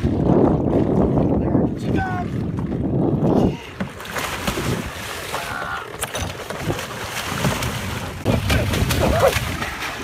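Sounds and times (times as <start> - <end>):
wind on microphone: 0.0 - 5.2, 6.2 - 10.0
water splashing and churning: 0.0 - 10.0.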